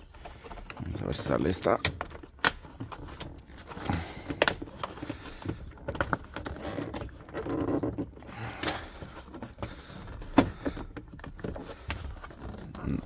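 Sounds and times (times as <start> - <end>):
plastic parts clicking and knocking: 0.0 - 13.0.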